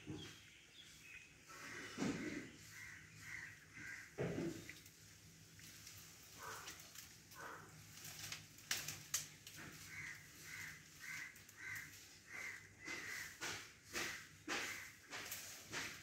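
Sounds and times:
crow cawing: 0:01.6 - 0:04.6, 0:09.6 - 0:15.2.

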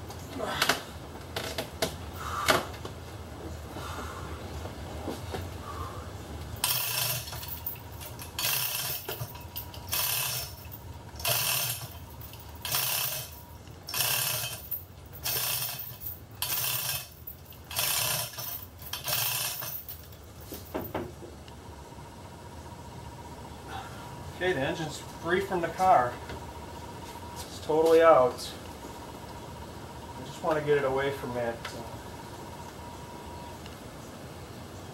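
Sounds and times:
hoist chain rattling: 0:06.6 - 0:20.2.

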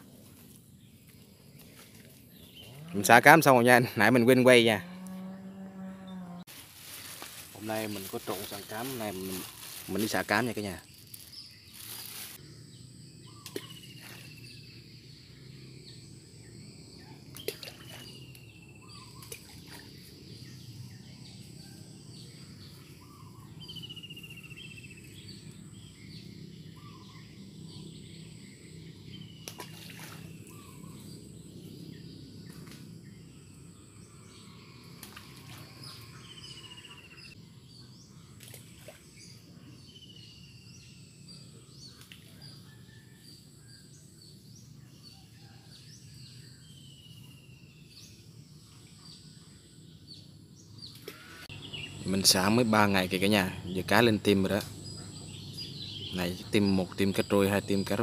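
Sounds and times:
high insect drone: 0:04.0 - 0:41.9.

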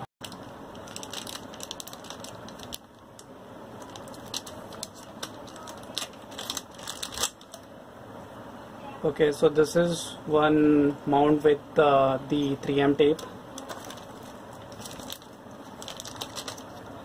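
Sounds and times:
plastic bags crinkling: 0:00.2 - 0:07.7, 0:13.2 - 0:17.0.

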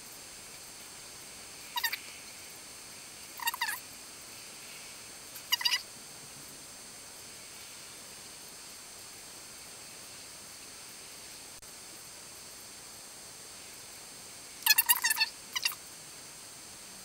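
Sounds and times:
steady faint hiss: 0:00.0 - 0:17.0
short high-pitched animal calls: 0:01.6 - 0:02.3, 0:03.4 - 0:03.8, 0:05.4 - 0:05.9, 0:14.6 - 0:15.8.

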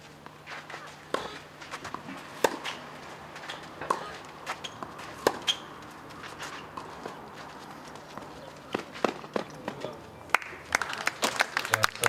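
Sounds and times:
racket hitting tennis ball: 0:01.1 - 0:09.8.

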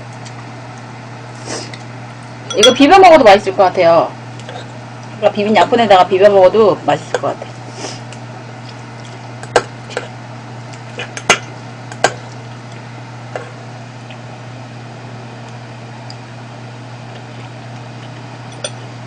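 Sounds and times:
steady low hum: 0:00.0 - 0:19.0
utensils clinking on ceramic bowl: 0:02.5 - 0:02.9.

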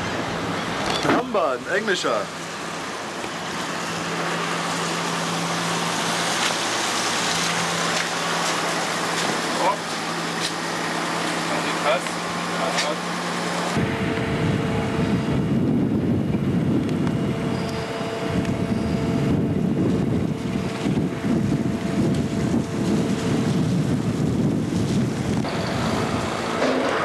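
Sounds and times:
steady hum: 0:00.0 - 0:27.0
wind buffeting microphone: 0:13.2 - 0:27.0.

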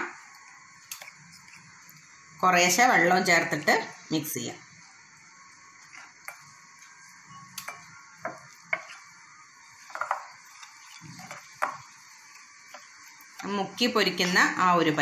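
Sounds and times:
spoon mixing thick batter: 0:00.4 - 0:03.9, 0:05.4 - 0:13.8.

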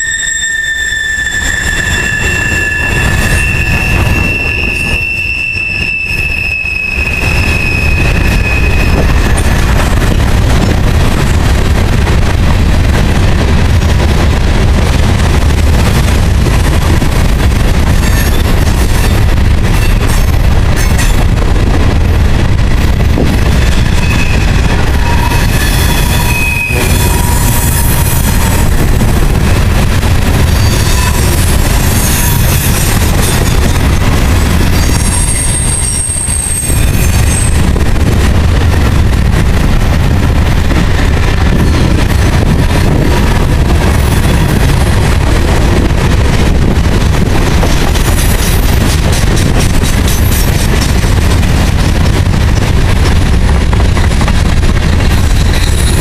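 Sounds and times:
high wheel squeal: 0:00.0 - 0:09.5, 0:23.7 - 0:28.3, 0:30.5 - 0:33.4, 0:34.7 - 0:37.7
train wheels rumbling on rail: 0:00.0 - 0:56.0.

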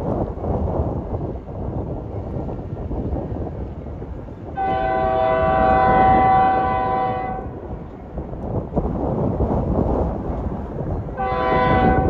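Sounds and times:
wind buffeting microphone: 0:00.0 - 0:12.0
locomotive air horn blast: 0:04.6 - 0:07.5, 0:11.2 - 0:12.0.

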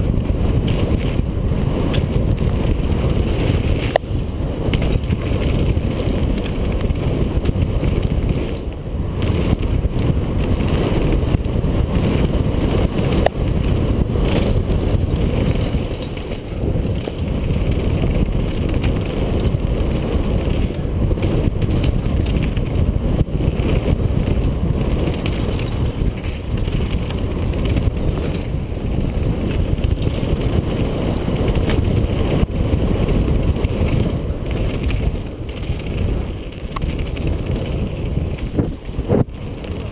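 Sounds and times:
mountain bike rattling over rocks: 0:00.0 - 0:39.9
wind buffeting microphone: 0:00.0 - 0:39.9.

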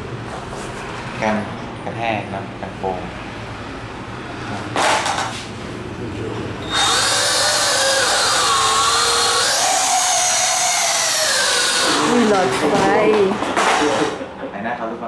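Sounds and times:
toy drone motors whining: 0:06.6 - 0:12.6.

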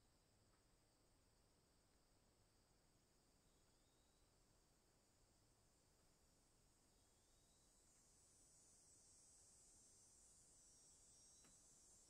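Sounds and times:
faint high-pitched hiss: 0:00.0 - 0:12.0.

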